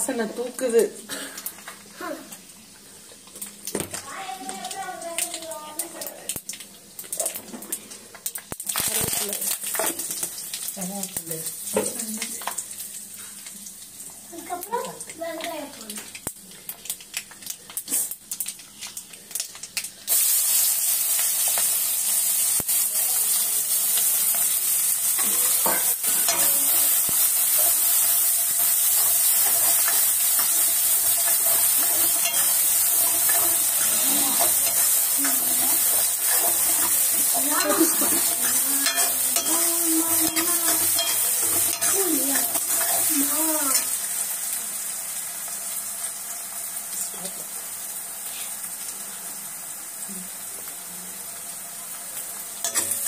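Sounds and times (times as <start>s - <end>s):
onions sizzling in oil: 0.0s - 53.0s
spices crackling in hot oil: 0.0s - 53.0s
metal ladle scraping pan: 27.6s - 43.1s.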